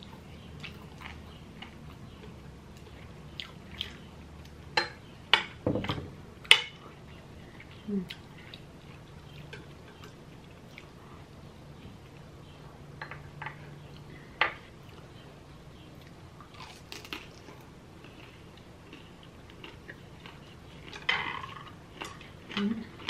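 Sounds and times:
person chewing a dumpling: 0:16.0 - 0:23.0.

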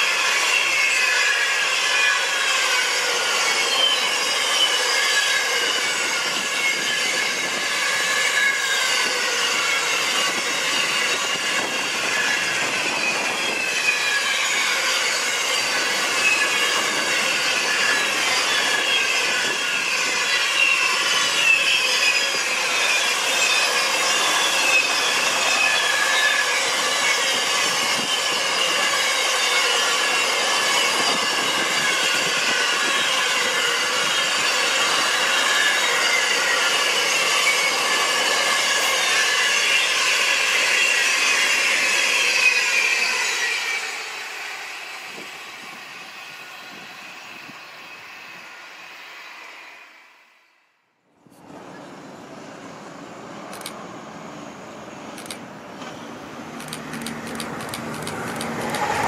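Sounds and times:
train wheels squealing: 0:00.0 - 0:50.7, 0:51.4 - 0:59.0
train rolling rumble: 0:51.2 - 0:59.0.

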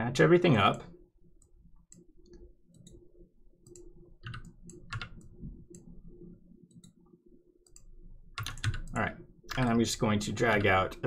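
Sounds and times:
faint steady hum: 0:00.0 - 0:11.0
computer mouse clicking: 0:01.4 - 0:03.0, 0:03.6 - 0:05.9, 0:06.7 - 0:09.7.

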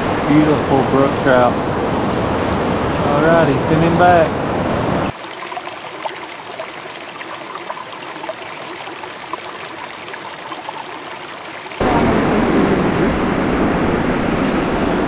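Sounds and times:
river water flowing over rocks: 0:05.1 - 0:12.2.

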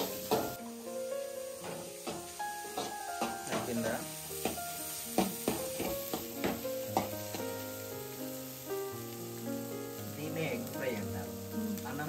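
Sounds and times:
egg sizzling in a pan: 0:00.0 - 0:12.0
music with long held notes: 0:00.0 - 0:12.0
spatula scraping a pan: 0:04.4 - 0:07.4.

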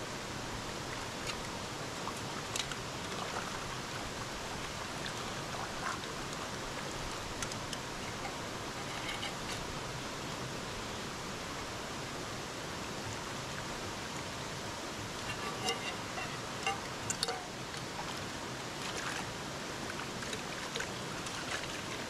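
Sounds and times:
stream rushing: 0:00.0 - 0:22.0
small water splashes: 0:00.8 - 0:09.8, 0:15.2 - 0:22.0
metal pot knocks: 0:15.3 - 0:17.5.

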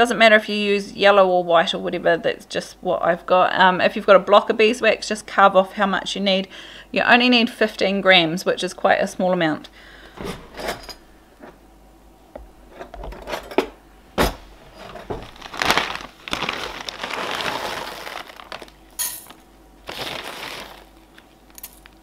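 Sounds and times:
plastic bag rustling: 0:14.4 - 0:22.0
wax pellets rattling in a pot: 0:14.8 - 0:22.0.

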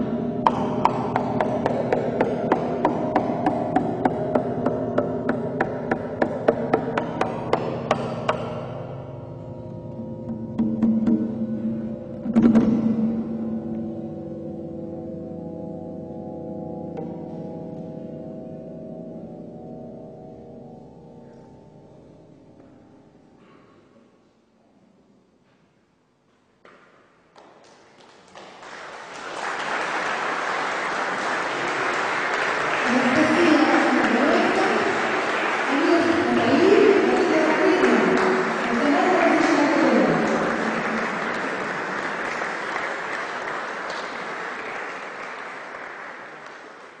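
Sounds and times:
audience applauding: 0:27.4 - 0:47.0.

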